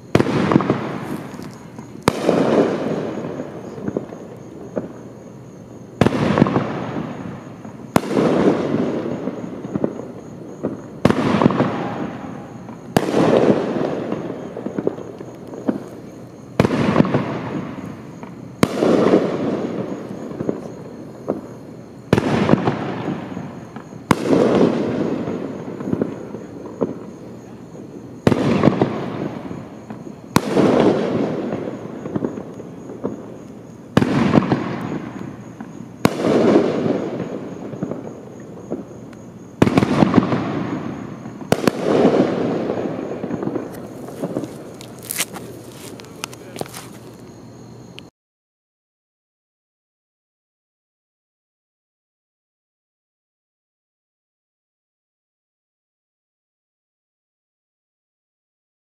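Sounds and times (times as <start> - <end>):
firework bangs: 0.0 - 47.5.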